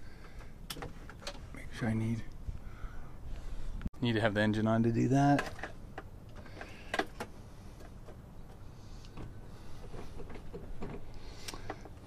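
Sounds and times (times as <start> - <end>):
faint clicks and knocks of handling: 5.3 - 12.0.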